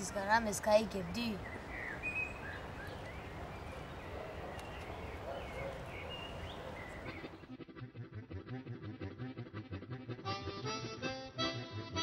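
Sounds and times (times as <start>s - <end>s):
bird chirps: 0.6s - 7.5s.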